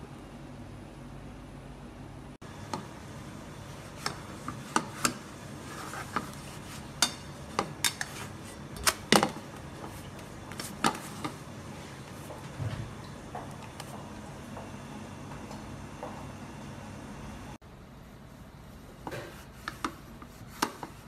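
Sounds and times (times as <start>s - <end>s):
utensils clicking against frying pan: 7.0s - 8.2s.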